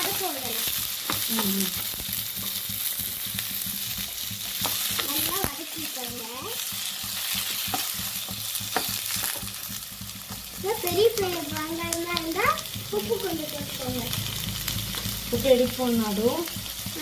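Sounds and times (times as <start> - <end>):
onions sizzling in hot oil: 0.0 - 17.0
wooden spatula knocking on pan: 2.1 - 14.1.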